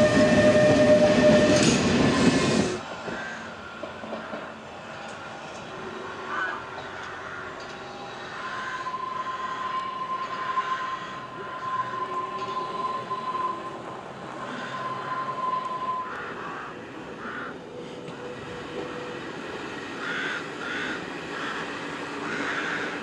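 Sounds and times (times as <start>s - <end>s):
high-pitched wheel squeal: 0.0s - 2.8s, 7.8s - 16.4s
tram running: 0.0s - 23.0s.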